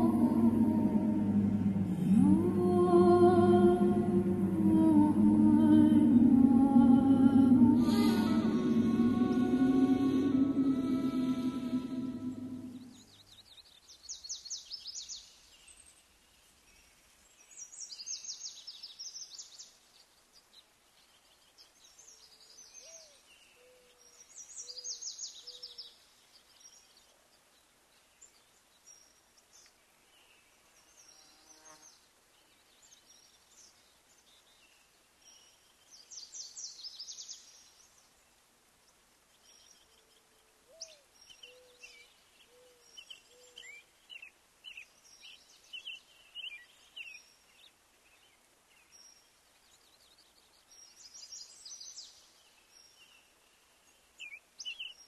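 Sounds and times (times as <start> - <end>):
soft low hooting call: 0.0 - 13.0
high chirping trills: 0.0 - 13.1.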